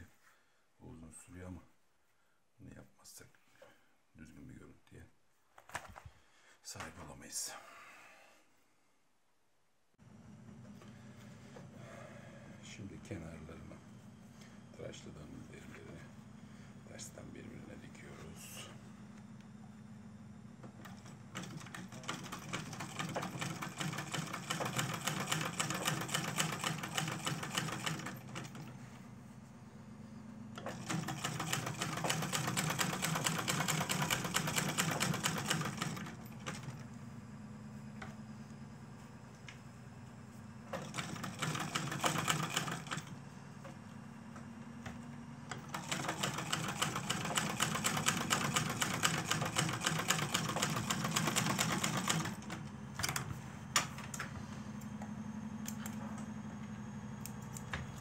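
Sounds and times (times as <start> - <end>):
sewing machine stitching leather: 20.6 - 28.8, 30.6 - 36.8, 40.7 - 43.2, 45.5 - 53.2.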